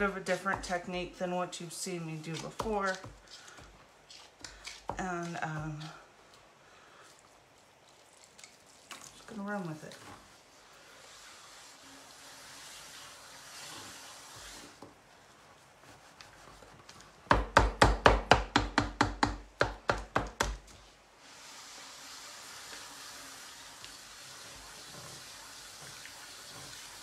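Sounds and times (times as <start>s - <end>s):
hands rubbing wet clay: 0.0s - 12.2s, 12.9s - 17.1s.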